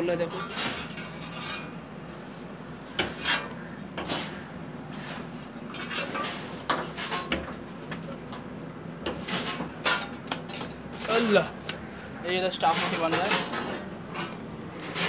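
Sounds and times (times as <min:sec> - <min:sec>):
metal utensils clattering: 0:00.2 - 0:01.8, 0:03.0 - 0:04.5, 0:05.7 - 0:07.6, 0:09.1 - 0:11.5, 0:12.6 - 0:15.0.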